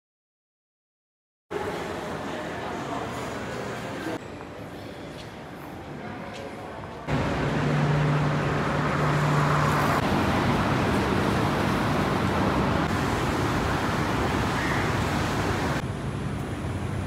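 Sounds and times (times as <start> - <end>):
road traffic: 6.7 - 17.0
low engine hum: 7.1 - 17.0.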